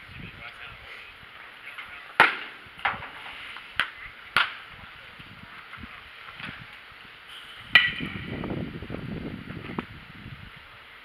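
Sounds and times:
wind rumble on microphone: 0.0 - 1.4, 3.7 - 11.0.

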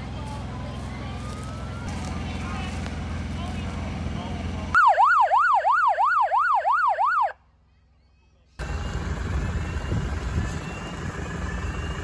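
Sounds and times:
electronic siren yelping: 4.8 - 7.4.

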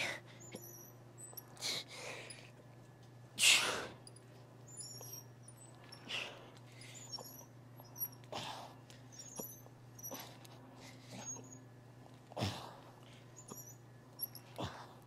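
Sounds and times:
short high squeaks: 0.3 - 1.6, 4.0 - 8.3, 9.1 - 10.5, 13.3 - 14.6.

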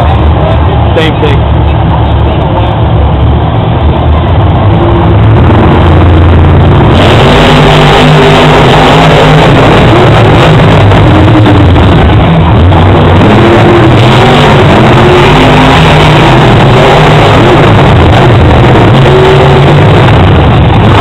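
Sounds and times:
truck engines revving: 0.0 - 21.0.

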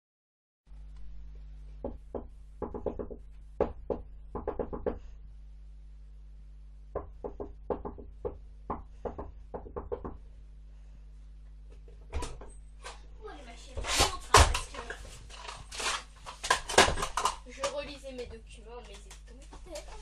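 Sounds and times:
low electrical hum: 0.7 - 20.0
hands knocking on plastic box: 1.8 - 5.0.

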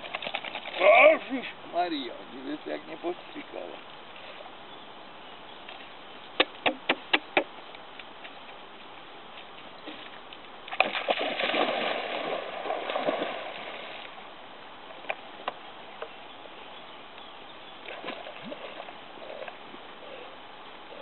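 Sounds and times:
light splashes: 9.8 - 14.2
dog splashing into water: 10.7 - 14.2
water churning: 10.7 - 14.2.

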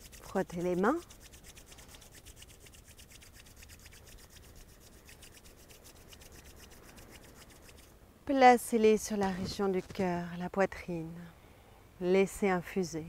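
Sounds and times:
palms rubbing together: 0.0 - 7.9.

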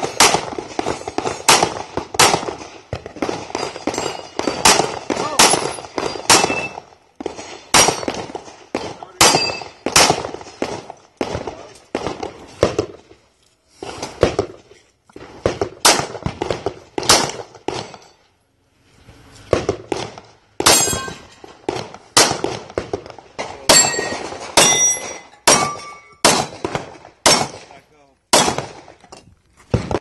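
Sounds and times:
pistol shots: 0.0 - 13.0, 15.2 - 18.0, 19.5 - 29.0
steel plates clanging: 3.4 - 4.8, 20.7 - 21.4, 23.4 - 26.2.

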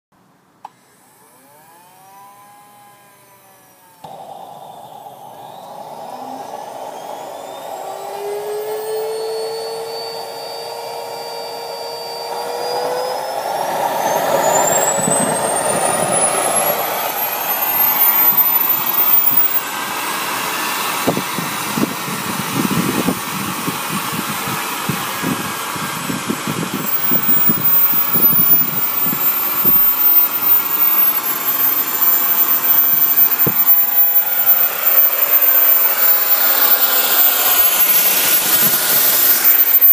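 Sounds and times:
jet turbine whine: 1.0 - 39.9
rough rumble: 12.3 - 19.6.

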